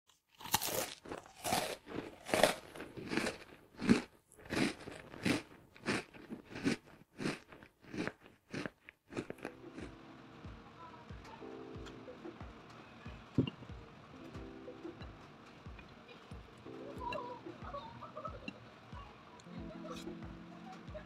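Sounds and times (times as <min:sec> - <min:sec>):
person chewing crisp food: 0:00.1 - 0:10.0.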